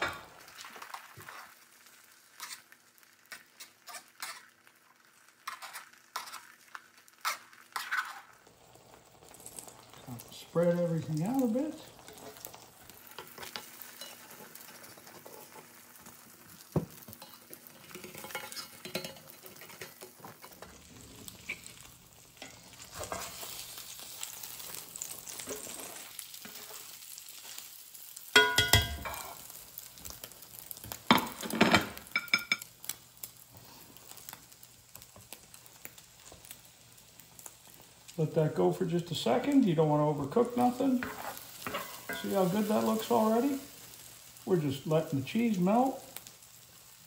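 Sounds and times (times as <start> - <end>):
eggs sizzling in a skillet: 0.0 - 47.0
spatula scraping and tapping pan: 2.4 - 4.5, 5.4 - 8.4, 12.0 - 20.8, 21.4 - 23.7, 28.3 - 29.4, 30.8 - 32.7, 40.6 - 43.2.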